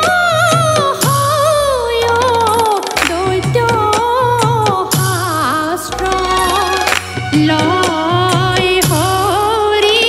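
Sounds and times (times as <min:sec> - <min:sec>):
woman singing devotional song: 0:00.0 - 0:10.0
drum strokes: 0:02.0 - 0:09.4.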